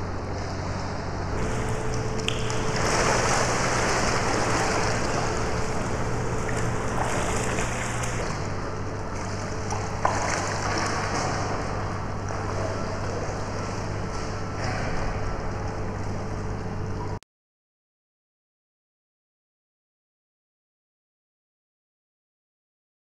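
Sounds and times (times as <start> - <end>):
steady low hum: 0.0 - 17.2
water splashing and churning: 0.1 - 16.4.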